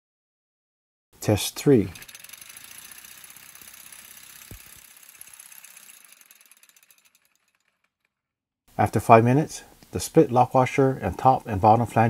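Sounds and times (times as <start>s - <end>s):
reciprocating saw rattling buzz: 1.4s - 8.3s.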